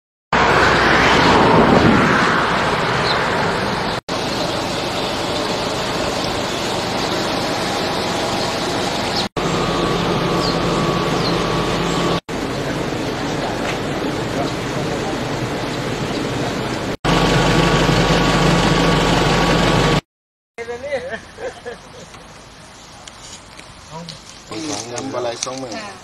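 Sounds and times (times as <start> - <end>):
outdoor rushing noise: 0.3 - 20.0
steady hum: 3.6 - 20.0.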